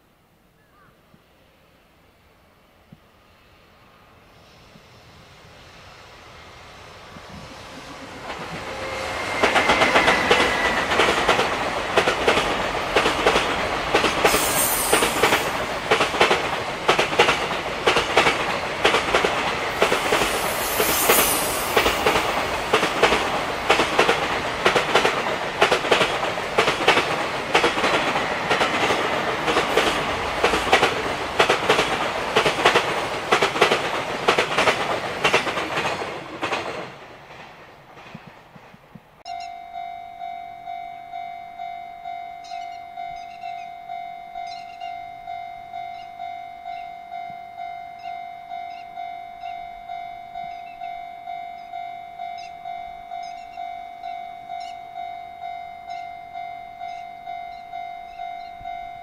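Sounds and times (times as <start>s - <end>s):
train wheels clattering over rail joints: 8.2s - 39.0s
high wheel squeals: 8.6s - 11.0s, 14.3s - 15.5s, 20.2s - 22.0s, 42.4s - 43.8s, 44.4s - 45.0s.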